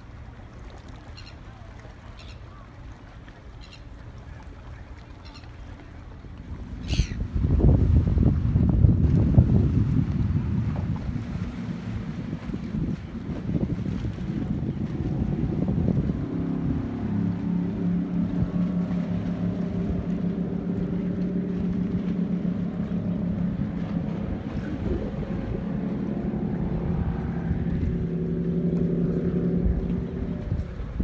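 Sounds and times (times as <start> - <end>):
boat engine droning: 0.0 - 31.0
wind rumbling on microphone: 3.6 - 31.0.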